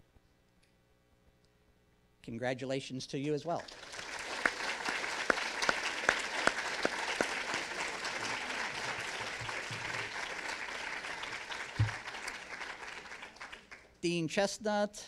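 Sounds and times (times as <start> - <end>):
loud individual claps: 3.6 - 13.9
audience applauding: 3.6 - 14.0.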